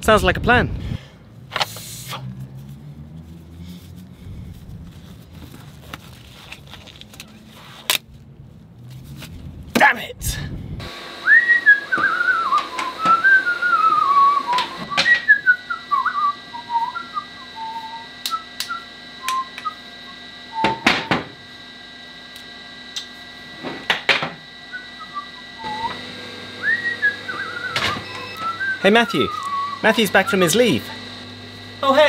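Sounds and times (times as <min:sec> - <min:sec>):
person whistling a tune: 0:11.2 - 0:19.8, 0:20.5 - 0:21.0, 0:24.7 - 0:26.0, 0:26.6 - 0:30.4.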